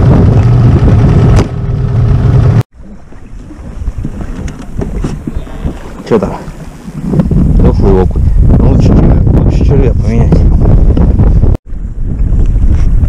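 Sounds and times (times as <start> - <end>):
boat motor running: 0.0 - 8.5
water noise: 0.0 - 13.0
wind: 0.0 - 13.0.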